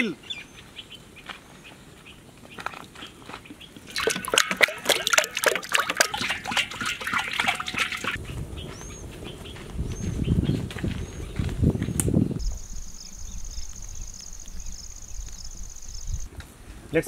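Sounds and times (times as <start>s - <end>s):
oil pouring into metal pan: 3.9s - 8.2s.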